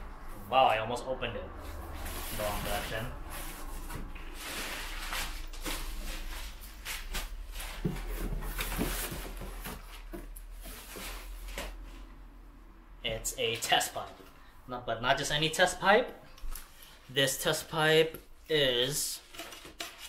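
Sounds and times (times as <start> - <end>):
paper and cardboard rustling: 1.8 - 12.1, 18.8 - 20.0.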